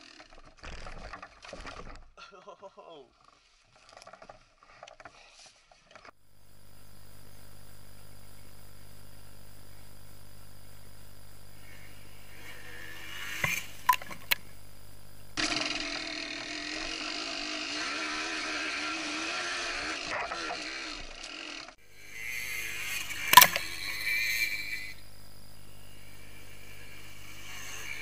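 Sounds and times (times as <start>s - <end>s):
dirt bike engine revving: 11.6s - 14.5s, 15.4s - 25.0s.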